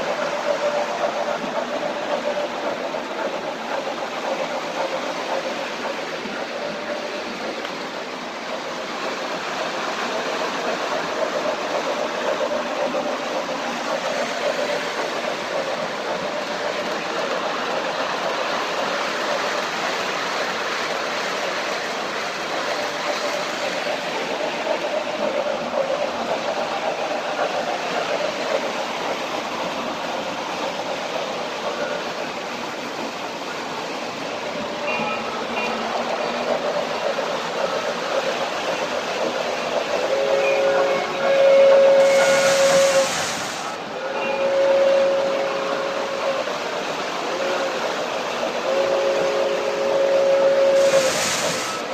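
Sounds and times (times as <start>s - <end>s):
model train wheels rumbling: 0.0s - 51.9s
model train whistle: 34.8s - 35.8s, 40.1s - 46.4s, 47.3s - 47.8s, 48.6s - 51.9s.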